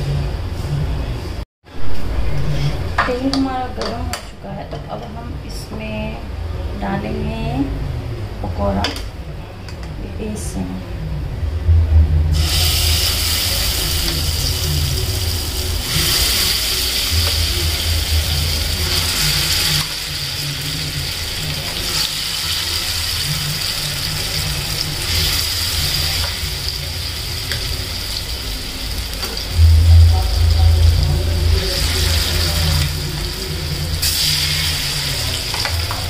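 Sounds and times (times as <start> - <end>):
low steady hum: 0.0 - 21.9, 22.6 - 36.0
food deep-frying in hot oil: 12.3 - 36.0.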